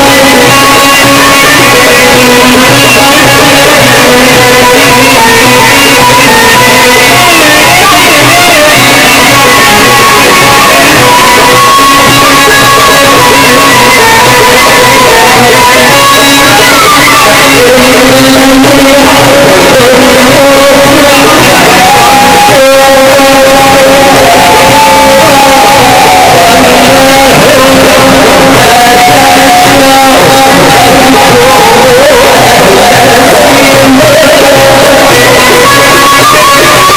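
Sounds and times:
person singing: 0.0s - 36.9s
string instrument: 0.0s - 36.9s
wavering melodic vocal line: 0.0s - 36.9s
crowd shouts: 10.1s - 12.3s, 21.4s - 36.8s.

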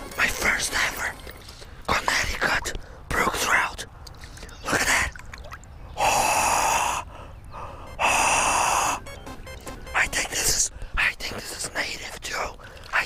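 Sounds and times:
person gasping for air: 6.0s - 9.0s.

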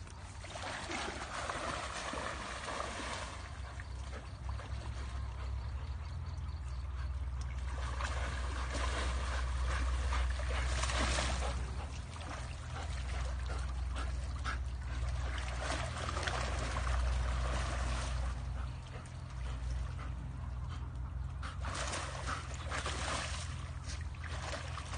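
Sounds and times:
water rushing and splashing: 0.0s - 3.7s, 7.6s - 14.1s, 14.9s - 18.7s.

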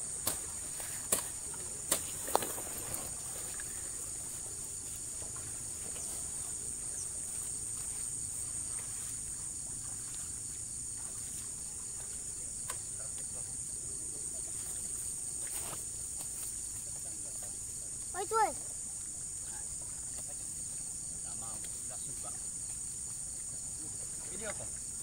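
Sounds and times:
insect chorus: 0.0s - 25.0s.

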